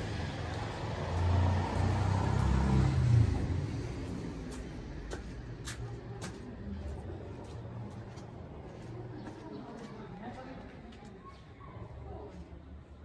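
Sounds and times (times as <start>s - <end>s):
vehicle engine rumbling: 0.0s - 9.2s
street background noise: 0.0s - 13.0s.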